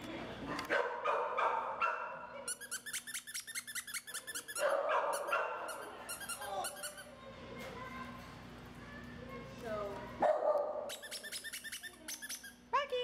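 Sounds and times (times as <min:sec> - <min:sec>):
dogs barking and whining: 0:00.5 - 0:06.9.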